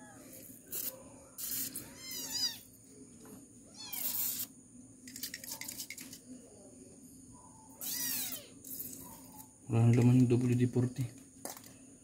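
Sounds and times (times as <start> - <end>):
aerosol can spraying: 0.7 - 1.8
cat meowing: 1.9 - 2.6, 3.7 - 4.4, 7.8 - 8.5.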